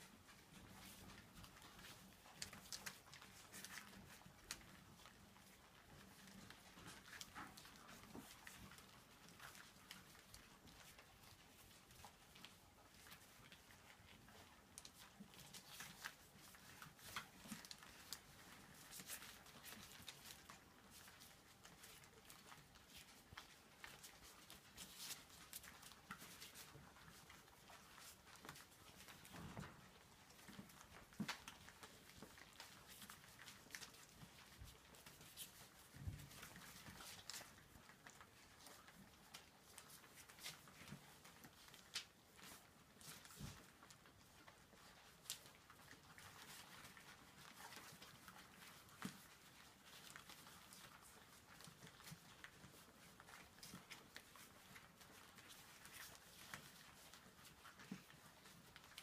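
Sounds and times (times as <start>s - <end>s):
puppies lapping food: 0.0s - 59.0s.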